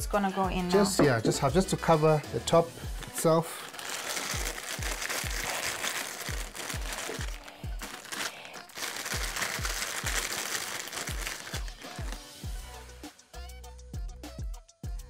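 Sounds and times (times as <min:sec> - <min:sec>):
music with deep kick drums: 0:00.0 - 0:02.1, 0:11.6 - 0:13.0, 0:13.6 - 0:15.0.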